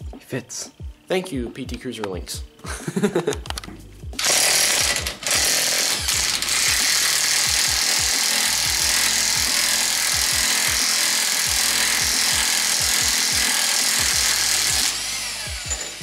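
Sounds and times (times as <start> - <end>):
background music with steady beat: 0.0 - 16.0
impact wrench hammering: 4.2 - 16.0.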